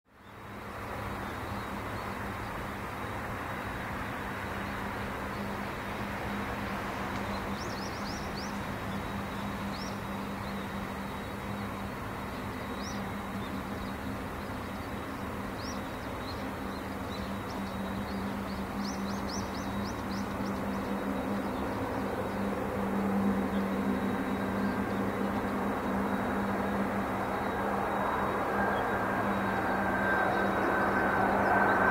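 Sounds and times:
distant airplane hum: 0.2s - 31.9s
small birds chirping: 7.1s - 11.7s, 12.3s - 22.5s.

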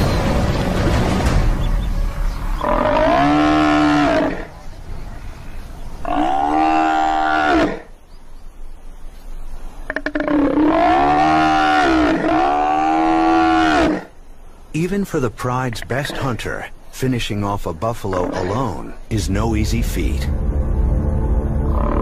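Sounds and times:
buffalo bellowing in distress: 2.6s - 4.5s, 6.0s - 7.9s, 10.1s - 14.1s.

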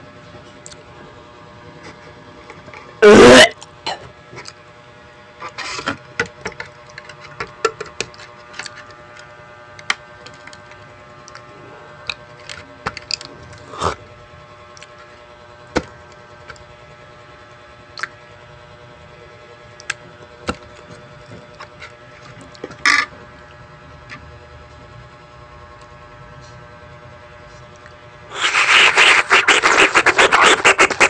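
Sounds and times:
teeth gnawing plastic bottle cap: 28.3s - 31.0s.

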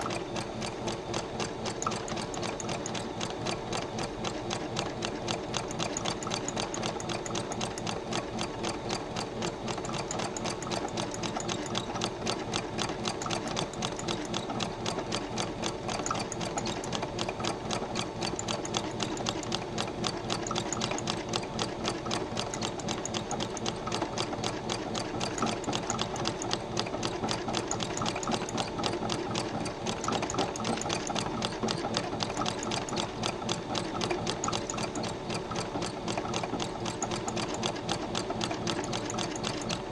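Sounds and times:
sewing machine clattering: 0.0s - 39.9s.

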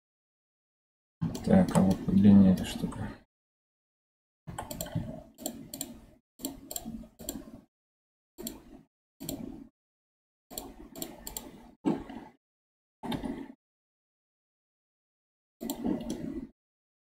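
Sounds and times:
keyboard and mouse clicks: 1.2s - 3.0s, 4.5s - 7.7s, 8.4s - 9.6s, 10.5s - 12.4s, 13.0s - 13.5s, 15.6s - 16.5s.

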